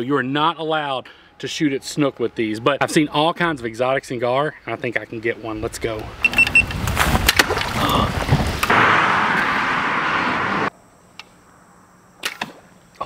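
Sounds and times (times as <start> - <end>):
rushing noise: 8.1 - 10.7.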